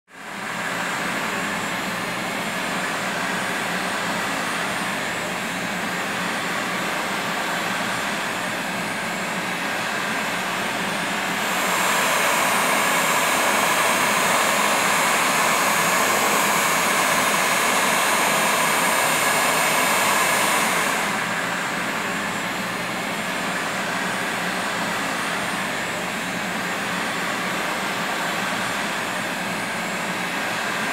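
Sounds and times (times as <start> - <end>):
heat gun blowing: 10.8 - 23.9.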